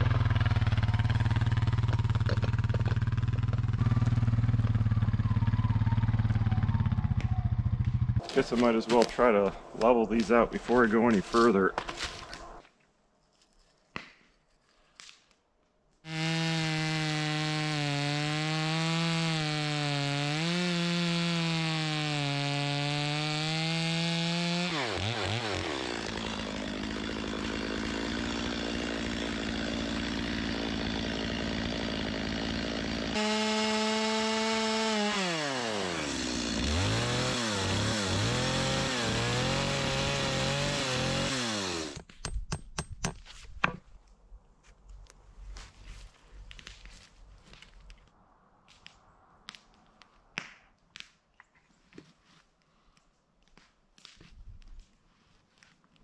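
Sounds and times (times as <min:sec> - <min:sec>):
chainsaw cutting wood: 0:00.0 - 0:05.1, 0:16.0 - 0:43.8.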